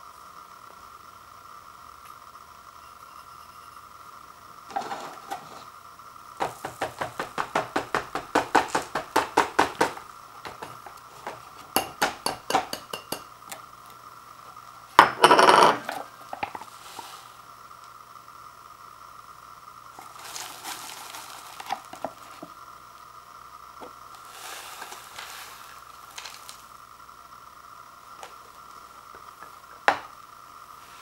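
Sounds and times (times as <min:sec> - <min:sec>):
ceramic bowl tapping paper cup: 0:06.4 - 0:13.3.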